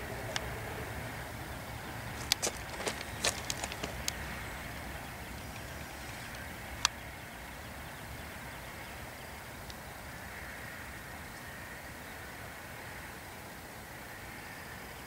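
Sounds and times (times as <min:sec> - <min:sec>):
sharp clicks: 0:02.2 - 0:04.2.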